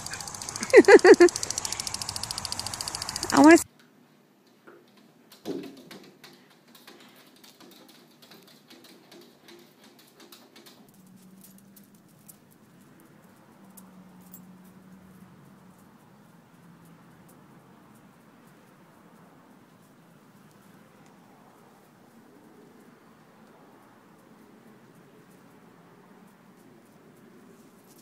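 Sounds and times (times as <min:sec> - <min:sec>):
paws tapping on glass door: 0:04.9 - 0:11.0.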